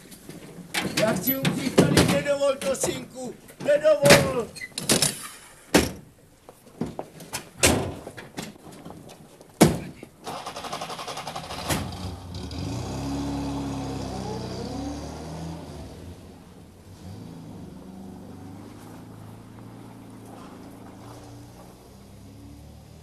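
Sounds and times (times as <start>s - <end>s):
vehicle engine starting and running: 10.2s - 23.0s.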